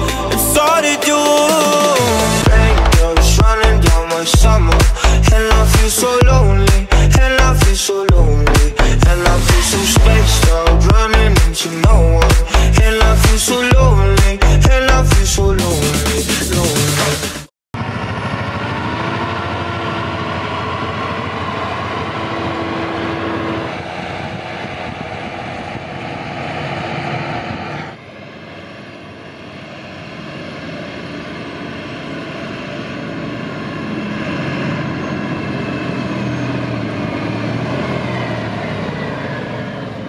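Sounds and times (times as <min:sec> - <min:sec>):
tractor driving on a road: 0:17.8 - 0:40.0
tractor working a field: 0:17.8 - 0:40.0.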